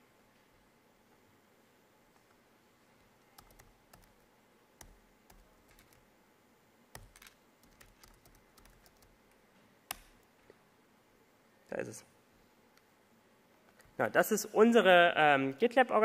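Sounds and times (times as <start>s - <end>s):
computer keyboard typing: 3.2s - 4.2s, 4.8s - 6.0s, 6.9s - 9.2s, 9.9s - 10.2s.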